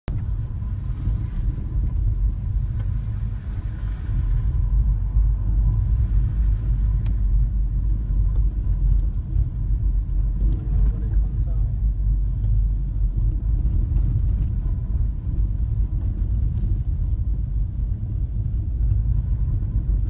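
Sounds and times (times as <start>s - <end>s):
car driving rumble from inside: 0.1s - 20.0s.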